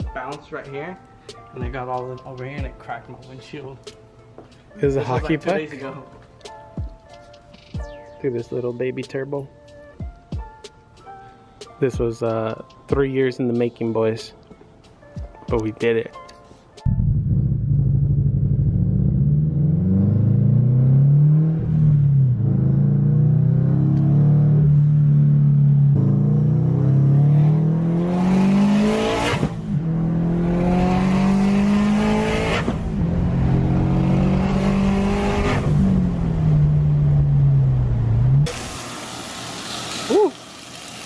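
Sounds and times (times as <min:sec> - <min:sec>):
car engine accelerating: 0:16.9 - 0:38.7
turbo rushing hiss: 0:38.5 - 0:41.0.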